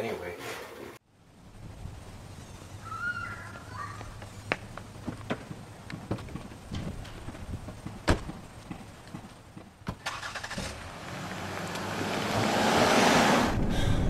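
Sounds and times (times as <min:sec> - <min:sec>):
car engine starting: 0:09.9 - 0:14.0
car driving closer: 0:10.1 - 0:14.0.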